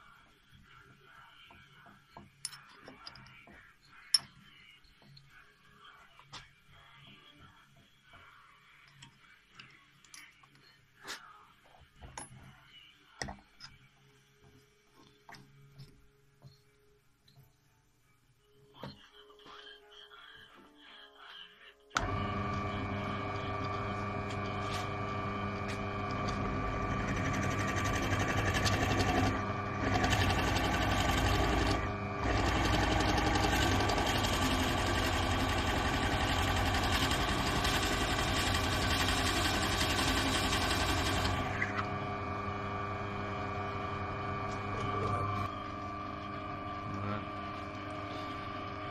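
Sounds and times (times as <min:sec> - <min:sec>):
pillar drill motor humming: 0:22.0 - 0:48.9
drill bit boring into wood: 0:25.8 - 0:42.6.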